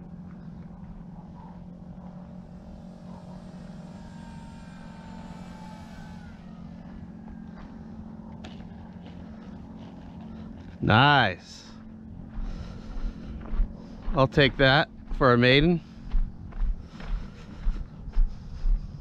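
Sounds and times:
model airplane motor whine: 0.0s - 15.2s
steady low hum: 0.0s - 19.0s.

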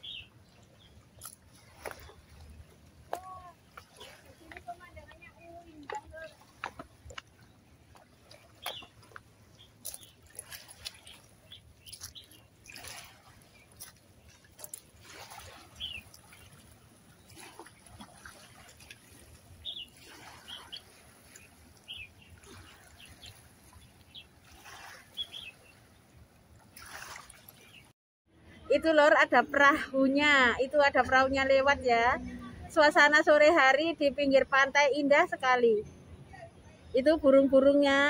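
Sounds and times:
bird chirps: 0.0s - 0.9s, 8.6s - 9.0s, 15.8s - 16.6s, 19.6s - 24.3s, 25.1s - 25.8s
small waves lapping on rocks: 0.0s - 27.9s.

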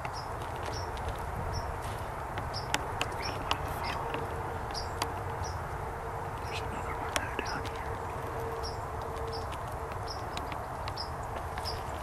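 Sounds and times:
wind rumble: 0.0s - 12.0s
faint steady hum: 0.1s - 12.0s
small bird chirping: 2.4s - 5.7s, 6.3s - 12.0s.

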